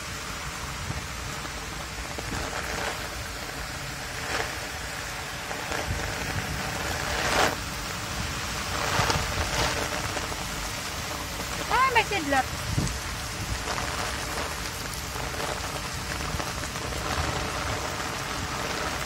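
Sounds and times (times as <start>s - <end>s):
heavy rain pouring: 0.0s - 19.0s.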